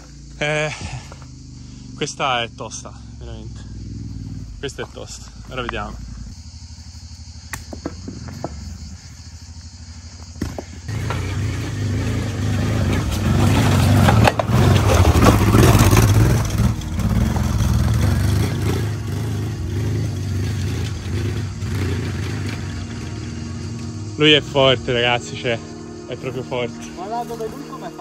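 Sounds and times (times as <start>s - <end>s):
motorcycle engine revving hard: 0.0s - 8.9s, 9.5s - 24.9s.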